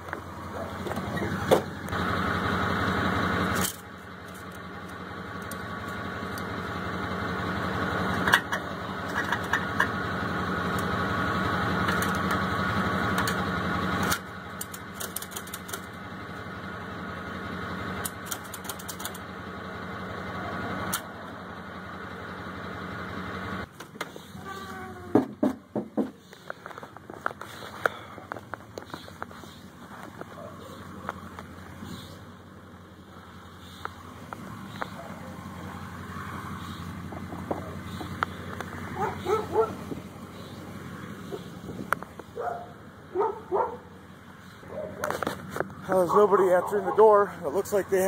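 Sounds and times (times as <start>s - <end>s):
vehicle engine running: 0.0s - 48.0s
clicks and clanks: 3.5s - 5.6s, 8.1s - 10.0s, 14.0s - 16.0s, 18.0s - 19.2s.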